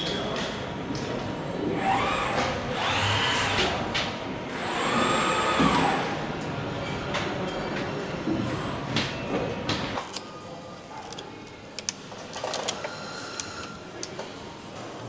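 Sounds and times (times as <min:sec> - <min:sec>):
factory machinery whirring: 0:01.3 - 0:15.0
small parts clicking: 0:11.0 - 0:14.2.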